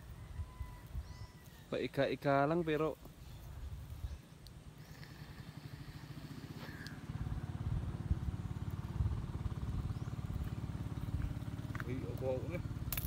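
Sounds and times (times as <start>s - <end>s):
wind buffeting microphone: 7.2s - 11.6s.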